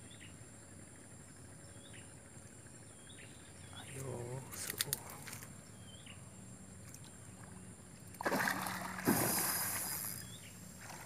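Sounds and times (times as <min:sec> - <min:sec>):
fish thrashing and splashing: 0:08.2 - 0:10.2.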